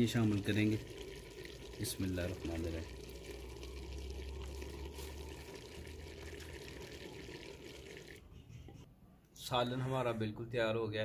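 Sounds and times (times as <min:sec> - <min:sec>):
curry simmering in a pot: 0:00.0 - 0:08.2.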